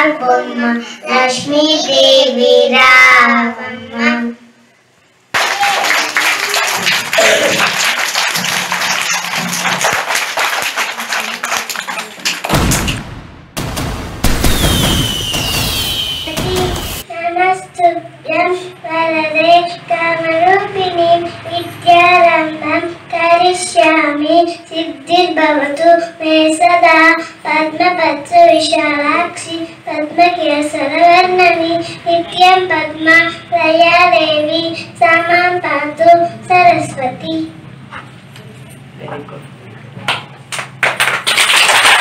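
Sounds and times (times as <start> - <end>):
loud noisy crackle: 12.4 - 17.0.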